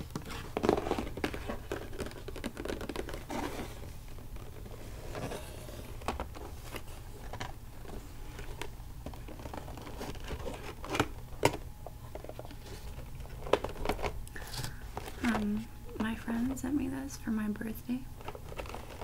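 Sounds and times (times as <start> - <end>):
low recording hum: 0.0 - 19.0.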